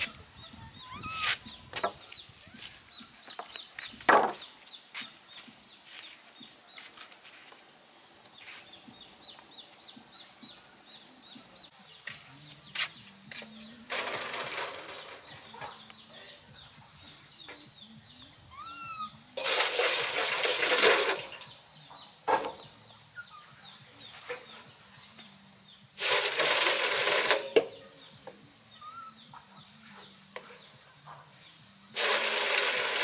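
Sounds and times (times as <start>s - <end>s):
faint high chirping: 0.0s - 7.0s, 14.9s - 19.4s, 21.3s - 25.9s, 27.7s - 32.0s
water splashing into steel basin: 19.4s - 21.4s.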